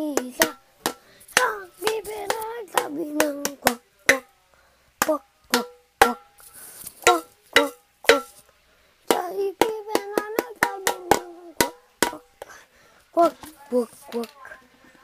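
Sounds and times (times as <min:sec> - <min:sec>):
hand striking hollow can: 0:00.0 - 0:04.3, 0:05.0 - 0:08.4, 0:09.1 - 0:12.5
child humming: 0:01.4 - 0:03.8.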